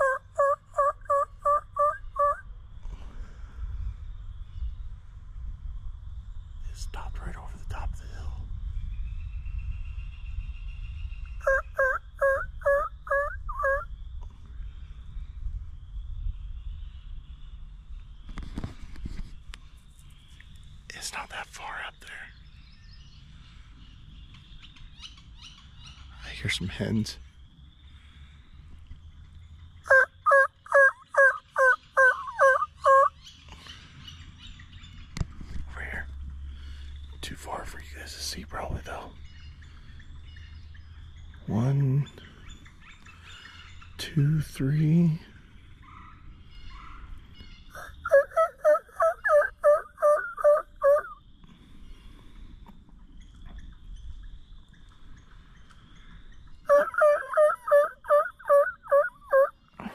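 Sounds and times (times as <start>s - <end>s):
turkey yelps: 0.0s - 2.4s, 11.4s - 13.9s, 29.8s - 33.2s, 45.8s - 51.2s, 56.7s - 59.5s.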